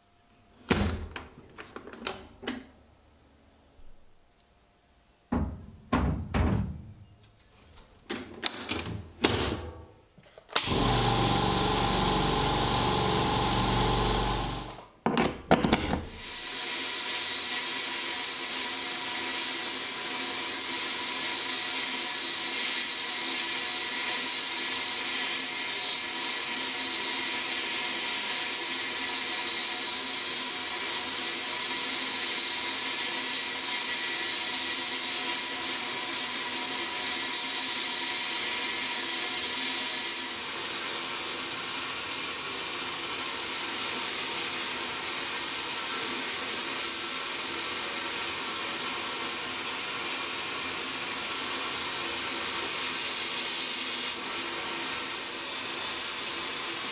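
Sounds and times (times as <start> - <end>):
machine running: 10.6 - 14.8.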